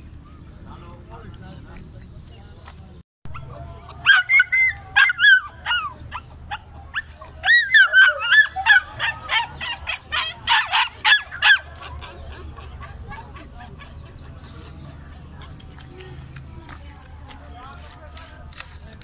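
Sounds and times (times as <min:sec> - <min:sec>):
young dog yipping: 0:03.3 - 0:16.1.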